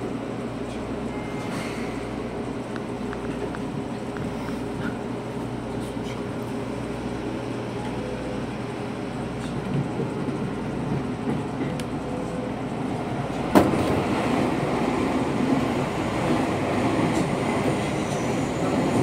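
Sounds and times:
oncoming train passing: 0:00.0 - 0:19.0
train wheel and running noise: 0:00.0 - 0:19.0.

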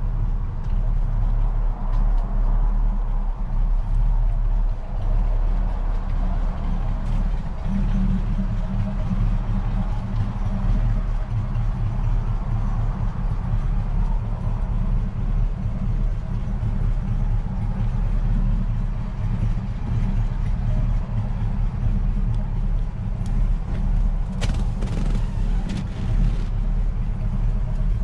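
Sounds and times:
seat back clicks and rustles: 0:24.2 - 0:26.5.

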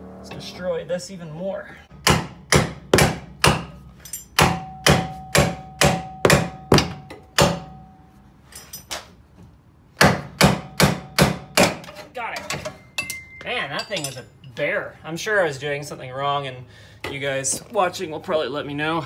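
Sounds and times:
metallic ringing: 0:03.7 - 0:09.0, 0:12.4 - 0:14.9.

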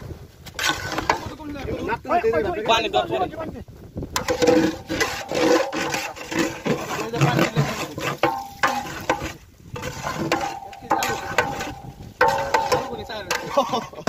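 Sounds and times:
ladle scraping metal pot: 0:00.5 - 0:01.6, 0:04.1 - 0:14.0
water sloshing: 0:04.2 - 0:14.0.

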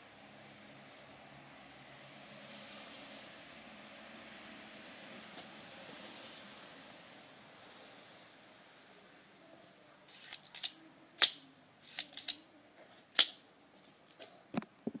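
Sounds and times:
metallic knife clicks: 0:10.1 - 0:12.4, 0:13.2 - 0:13.4
knife blade snapping: 0:13.2 - 0:13.4.

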